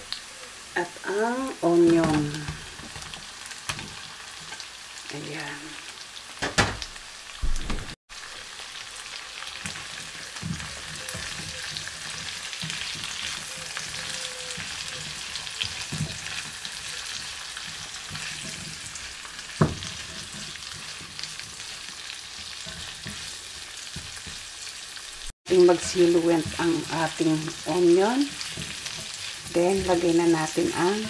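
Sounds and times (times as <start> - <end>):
vegetables sizzling in hot oil: 0.0 - 7.5, 8.1 - 31.0
spatula scraping and tapping pan: 9.6 - 24.5, 25.7 - 31.0.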